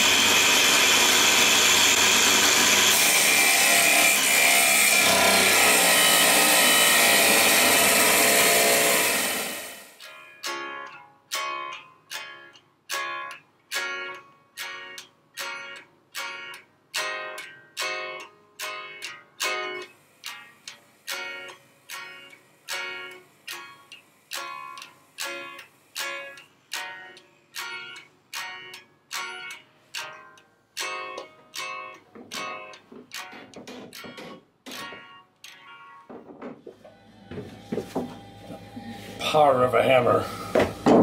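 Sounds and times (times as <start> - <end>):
angle grinder cutting steel: 0.0 - 10.1, 36.9 - 41.0
plucked guitar notes: 10.0 - 36.2.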